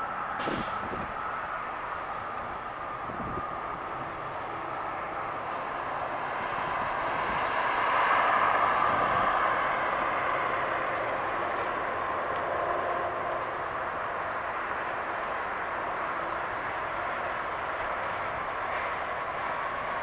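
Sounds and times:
car driving past: 4.2 - 13.7.

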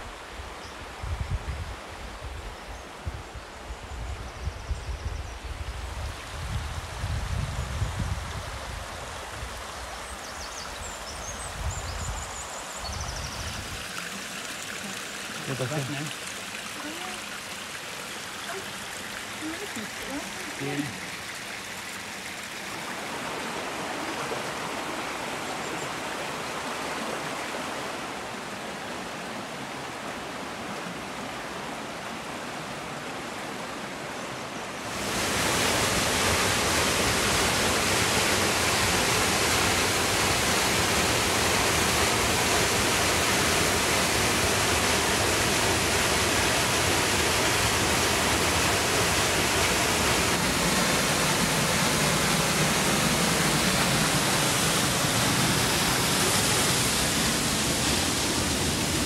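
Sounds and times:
waterfall roaring: 11.8 - 59.0.

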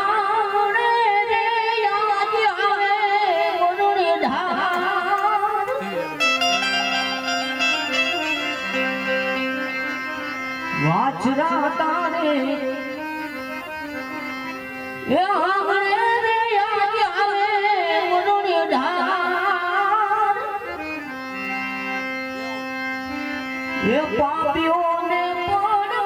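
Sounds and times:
harmonium drone: 0.0 - 26.0.

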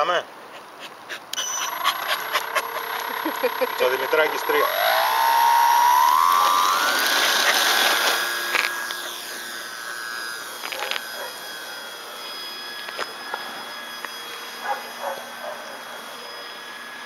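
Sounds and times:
model plane motor whining: 1.3 - 17.0.

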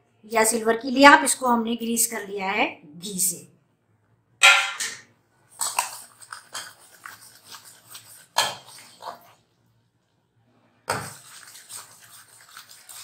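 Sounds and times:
syrup bubbling: 5.5 - 9.8, 10.9 - 13.0
ladle scraping a steel pan: 5.6 - 9.4, 10.8 - 13.0.

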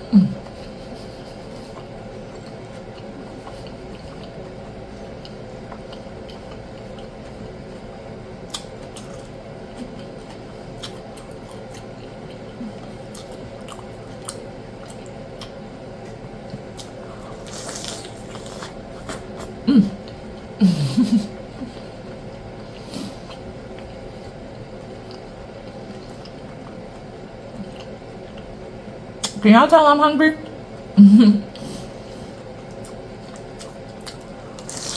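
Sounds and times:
faint steady hum: 0.0 - 34.9
wet chewing and smacking: 0.4 - 20.5, 21.6 - 29.4, 32.2 - 34.9.

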